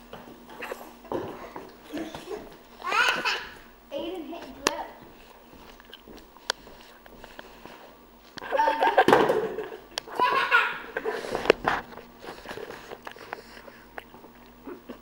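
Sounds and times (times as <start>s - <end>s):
people laughing: 8.4s - 11.0s.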